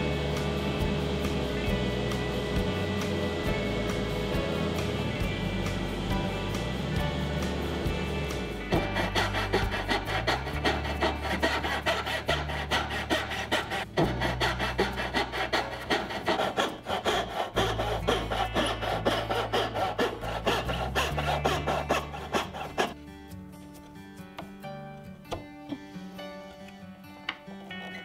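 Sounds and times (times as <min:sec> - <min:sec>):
hand saw cutting wood: 0:05.6 - 0:23.0.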